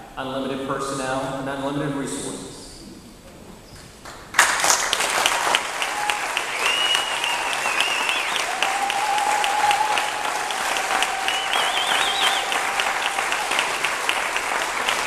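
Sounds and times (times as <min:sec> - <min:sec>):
audience applauding: 0:04.0 - 0:15.0
high whistles: 0:05.7 - 0:14.2.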